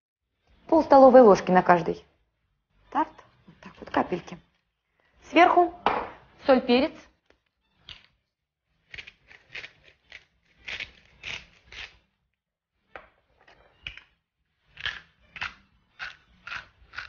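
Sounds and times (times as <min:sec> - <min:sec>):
spice mill grinding: 0:08.8 - 0:12.0, 0:14.7 - 0:17.0.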